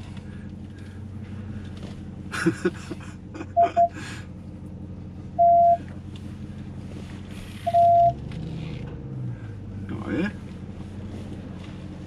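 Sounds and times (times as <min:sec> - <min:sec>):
truck engine humming: 0:00.0 - 0:12.0
electronic beeps: 0:03.6 - 0:04.0, 0:05.4 - 0:05.8, 0:07.7 - 0:08.2.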